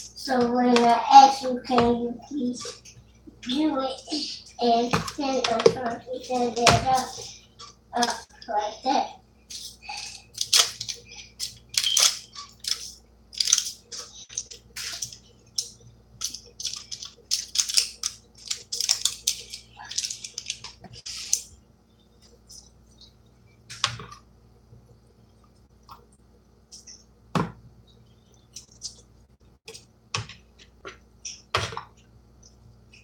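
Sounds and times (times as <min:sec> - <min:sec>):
plastic packaging crinkling: 0:10.1 - 0:21.4.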